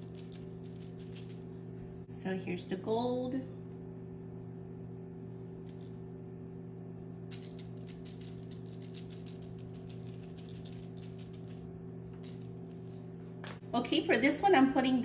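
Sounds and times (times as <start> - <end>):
sprinkles rattling in shaker jar: 0.0 - 1.6, 7.3 - 13.1
steady low hum: 0.0 - 15.0.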